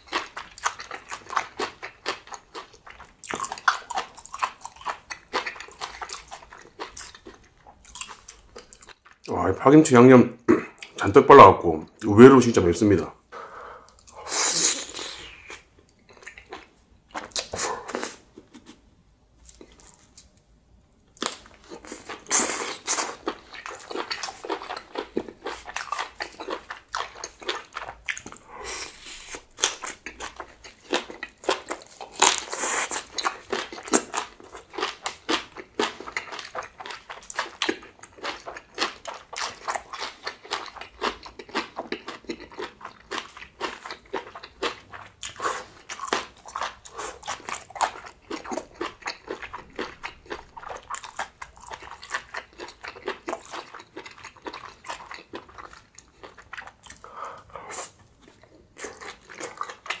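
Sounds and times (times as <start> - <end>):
person biting and chewing crunchily: 21.2 - 57.0.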